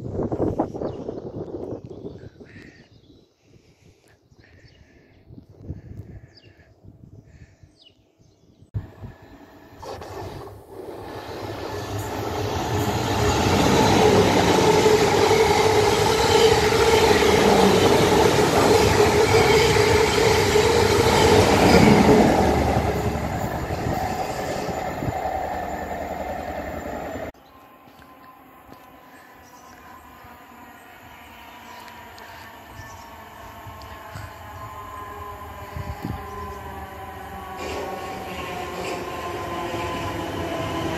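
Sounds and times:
electric train whine: 8.8s - 40.9s
train wheels rumbling on rail: 10.4s - 27.3s, 31.7s - 40.9s.

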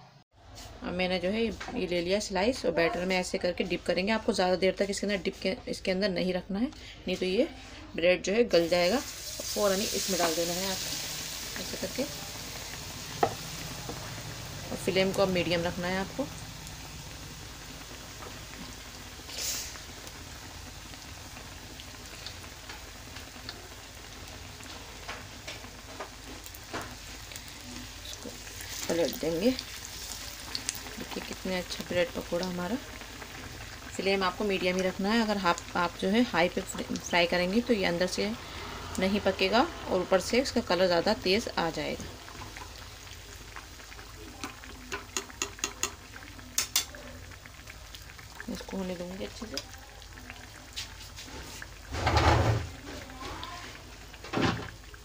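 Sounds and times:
oil sizzling in a pan: 8.3s - 55.0s
oil popping and crackling: 8.6s - 39.6s, 40.2s - 55.0s
steel spoon clicking against pan: 44.4s - 46.9s.

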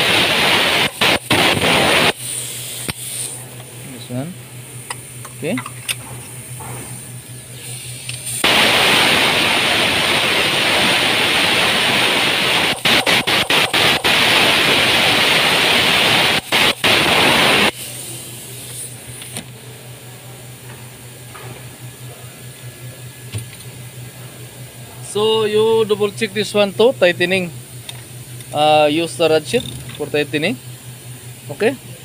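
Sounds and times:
loud rushing hiss: 0.0s - 3.4s, 8.3s - 18.1s.

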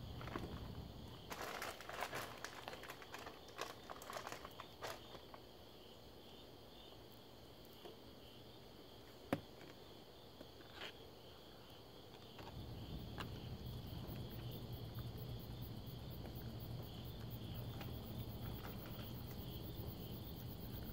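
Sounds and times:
insect chirring: 0.0s - 9.2s, 9.8s - 20.9s
faint clicks and crackles: 1.3s - 5.4s.

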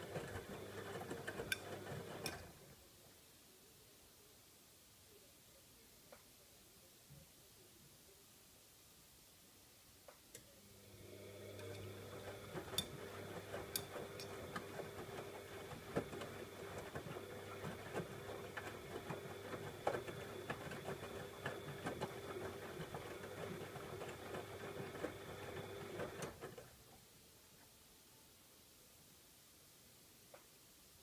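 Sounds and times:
washing machine motor hum: 0.0s - 2.6s, 10.6s - 26.7s
wet laundry tumbling: 11.9s - 26.7s.

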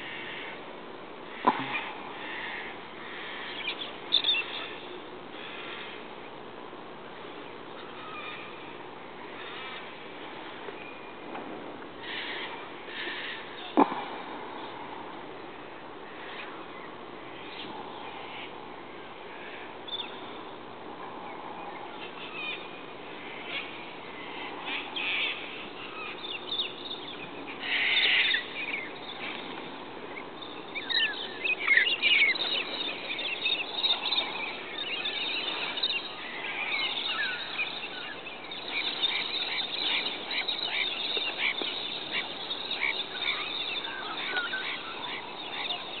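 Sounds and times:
birds calling harshly: 0.0s - 0.6s, 1.2s - 6.5s, 7.2s - 11.3s, 11.9s - 14.8s, 15.6s - 46.0s
flock wingbeats: 23.3s - 46.0s.

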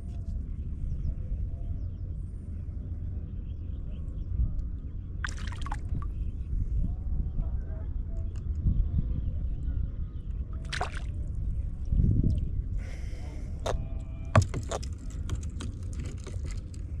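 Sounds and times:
knocks and splashes: 5.2s - 5.9s, 10.6s - 11.1s, 14.4s - 16.6s
water sloshing against hull: 5.2s - 6.4s, 10.4s - 12.6s, 13.6s - 17.0s.

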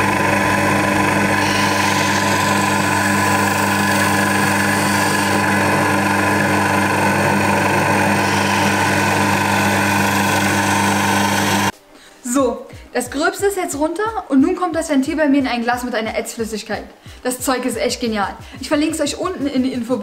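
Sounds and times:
lathe motor humming: 0.0s - 11.7s.

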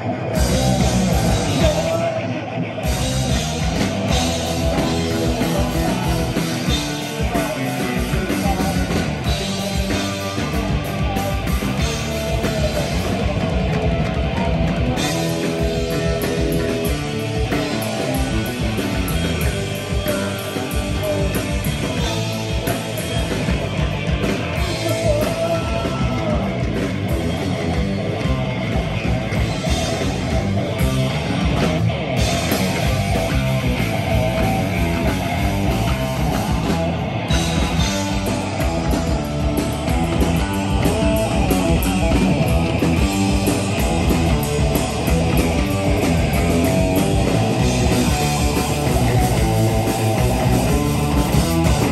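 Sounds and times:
distorted electric guitars: 0.0s - 51.9s
electric bass: 0.0s - 51.9s
fast driving drum kit: 0.0s - 51.9s.

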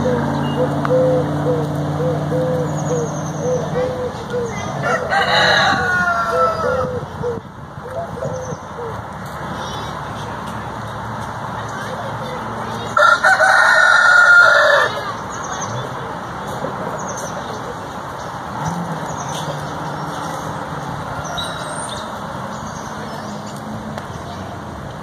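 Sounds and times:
rooster crowing: 4.8s - 7.0s, 13.0s - 15.0s.

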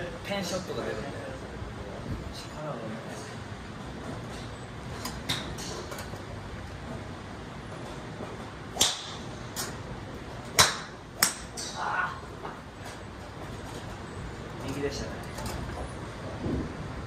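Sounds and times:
golf club striking ball: 8.7s - 9.7s, 10.5s - 11.8s.

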